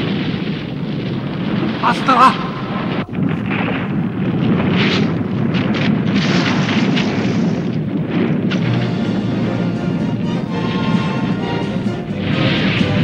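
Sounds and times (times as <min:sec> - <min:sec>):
booming explosion effects: 0:00.0 - 0:13.0
dramatic background music: 0:08.6 - 0:13.0.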